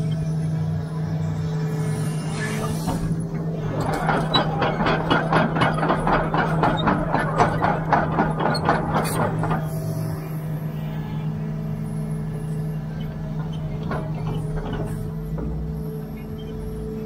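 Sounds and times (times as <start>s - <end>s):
excavator diesel engine running: 0.0s - 17.0s
steel tracks clattering: 2.7s - 10.2s, 13.3s - 16.8s.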